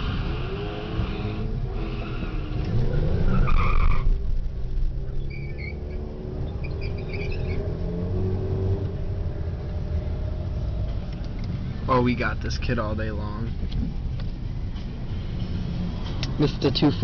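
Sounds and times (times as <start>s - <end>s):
car engine at full throttle: 0.0s - 6.8s.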